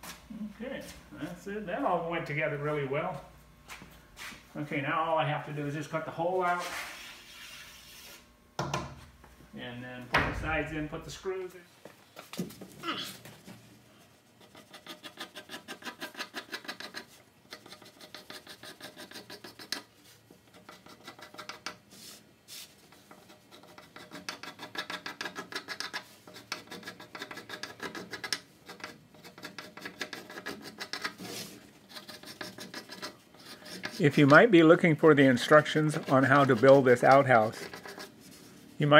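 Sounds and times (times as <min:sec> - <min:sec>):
pencil scratching on plywood: 0:14.3 - 0:34.4, 0:35.4 - 0:38.5.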